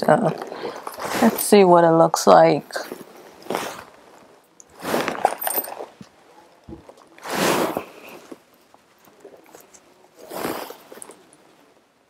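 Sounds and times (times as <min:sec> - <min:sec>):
rustling of earrings handled: 0:00.2 - 0:01.7, 0:02.8 - 0:11.6.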